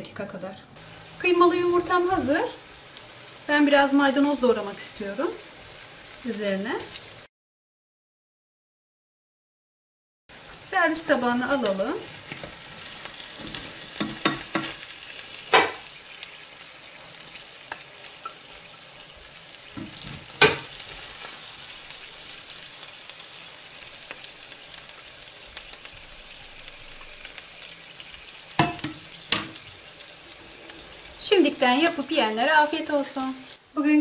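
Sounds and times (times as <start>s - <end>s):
sizzle from hot pan: 0.8s - 7.3s, 10.3s - 34.0s.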